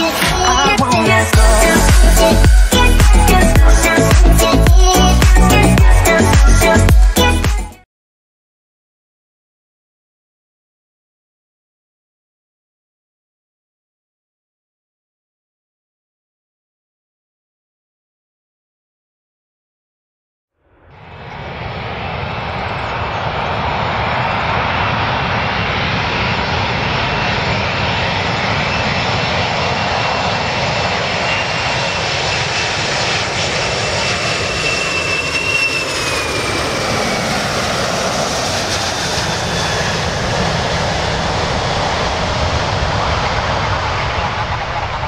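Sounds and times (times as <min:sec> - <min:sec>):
high whine sliding down: 0:00.0 - 0:06.9, 0:20.6 - 0:45.0
jet engines rumbling: 0:00.0 - 0:07.4, 0:20.8 - 0:45.0.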